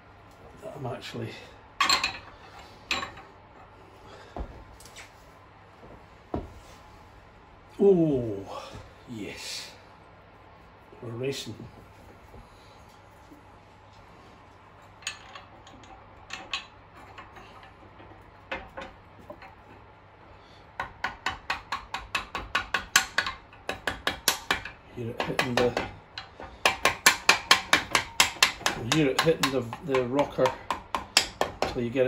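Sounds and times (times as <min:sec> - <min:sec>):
mallet tapping metal shaft: 0:20.8 - 0:31.8.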